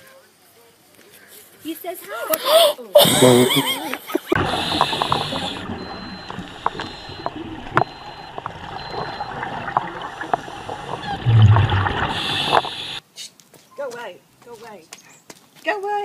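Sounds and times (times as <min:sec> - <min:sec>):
diver breathing through regulator: 0:04.4 - 0:09.3, 0:10.0 - 0:13.0
rush of exhaled bubbles: 0:04.4 - 0:13.0.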